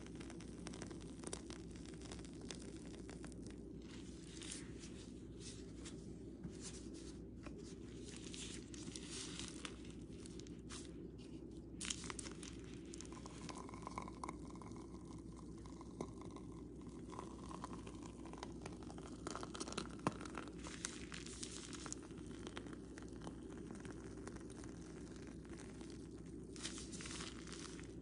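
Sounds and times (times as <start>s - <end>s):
plastic piping bag crinkling: 0.0s - 6.0s, 6.8s - 28.0s
low steady hum: 0.0s - 28.0s.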